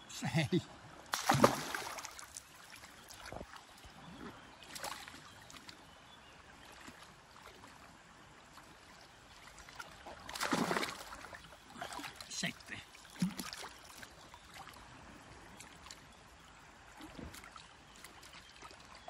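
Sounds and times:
water splashing: 0:01.0 - 0:05.7, 0:09.4 - 0:14.7.

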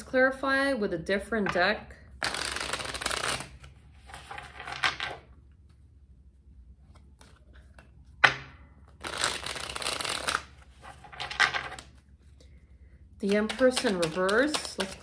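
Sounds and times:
cards being shuffled: 0:02.2 - 0:05.8, 0:06.8 - 0:12.4, 0:13.2 - 0:15.0.

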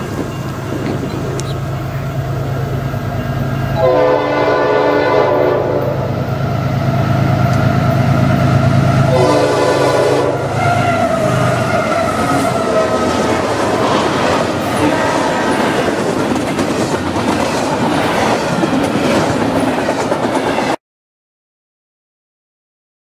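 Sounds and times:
locomotives rushing past: 0:00.0 - 0:20.8
train rumbling: 0:00.0 - 0:20.8
locomotive horn blasts: 0:03.4 - 0:06.2, 0:09.1 - 0:13.3.

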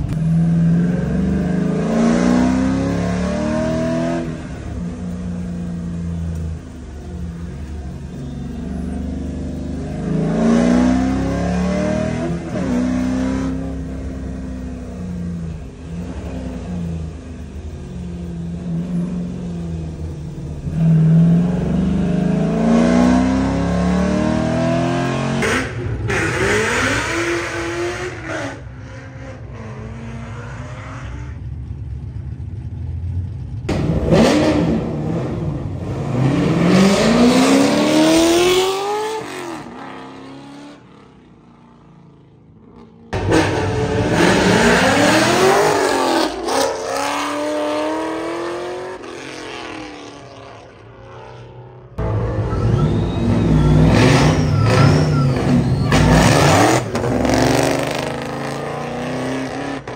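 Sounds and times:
car engine revving: 0:33.7 - 0:41.0, 0:42.8 - 0:59.9.

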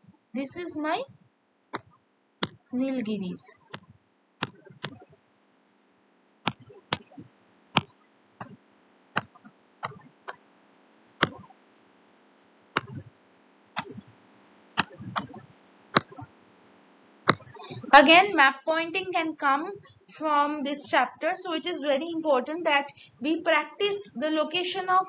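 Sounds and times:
stylus tapping on tablet screen: 0:01.8 - 0:02.7, 0:03.6 - 0:05.2, 0:06.5 - 0:08.6, 0:09.2 - 0:10.4, 0:11.2 - 0:11.5, 0:12.8 - 0:13.1, 0:13.8 - 0:14.1, 0:14.8 - 0:16.3, 0:17.3 - 0:17.8.

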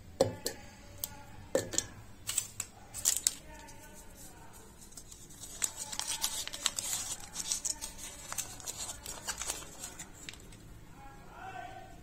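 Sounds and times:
foil wrapper crinkling: 0:02.3 - 0:10.6.

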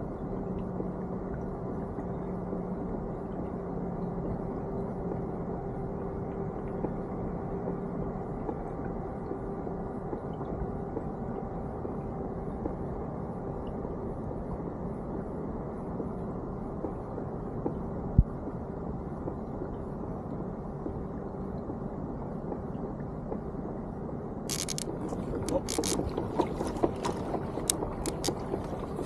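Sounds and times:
faint steady hum: 0:00.0 - 0:29.0
kayak moving through water: 0:24.5 - 0:29.0.

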